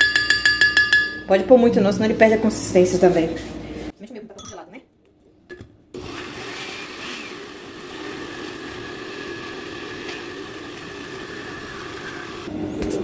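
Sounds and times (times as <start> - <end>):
blender motor whirring: 6.0 - 12.5.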